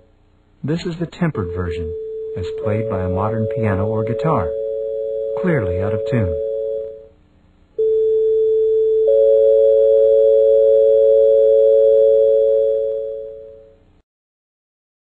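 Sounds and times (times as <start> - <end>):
steady electronic tones: 0.7 - 7.1.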